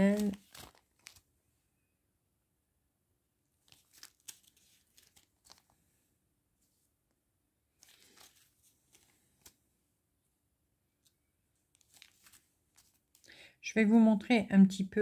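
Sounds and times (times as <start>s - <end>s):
plastic bags crinkling: 0.0s - 1.3s, 3.6s - 5.8s, 7.8s - 9.6s, 11.7s - 13.4s.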